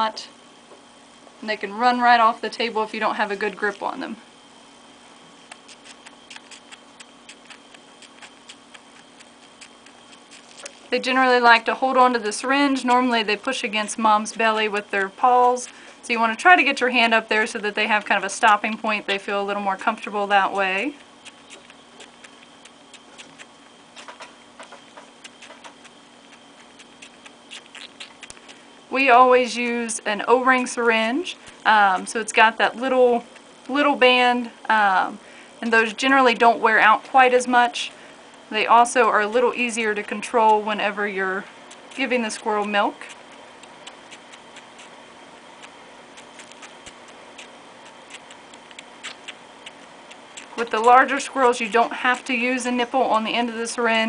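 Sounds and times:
faint steady hum: 0.0 - 54.0
baby squirrel suckling clicks: 5.4 - 10.9, 11.5 - 19.2, 19.8 - 28.6, 41.7 - 45.0, 45.6 - 52.4.

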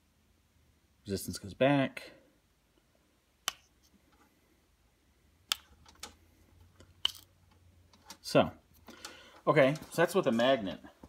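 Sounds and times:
magnet clicking against metal: 6.8 - 7.3.

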